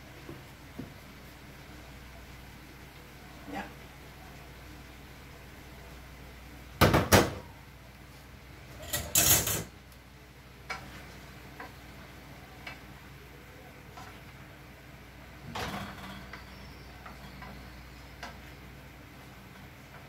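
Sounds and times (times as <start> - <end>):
dishes and utensils clattering: 8.8 - 9.7.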